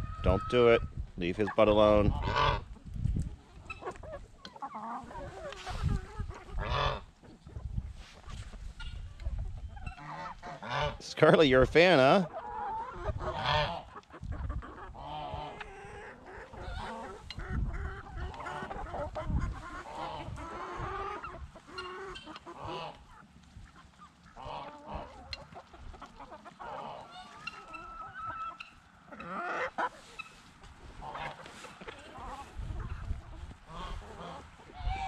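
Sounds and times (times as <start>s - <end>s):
chickens clucking: 0.0s - 35.0s
goose honking: 2.1s - 2.7s, 6.4s - 7.1s, 9.8s - 11.1s, 12.7s - 14.0s, 18.0s - 23.2s, 31.0s - 32.5s, 33.7s - 35.0s.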